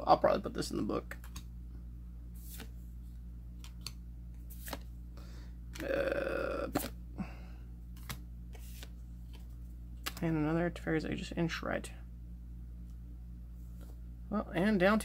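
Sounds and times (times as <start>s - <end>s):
steady low hum: 0.0s - 15.0s
trading cards clicking and flicking: 1.1s - 1.5s, 3.6s - 4.9s, 6.7s - 7.0s, 7.9s - 10.2s
short vocal sound: 5.8s - 7.0s.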